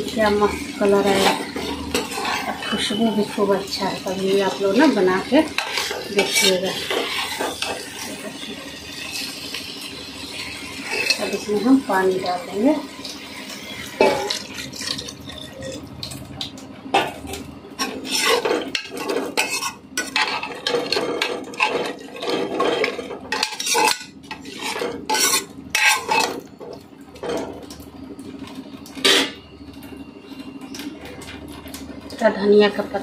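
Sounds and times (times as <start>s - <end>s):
metal spatula scraping a pot: 0.0s - 15.8s, 17.8s - 26.4s.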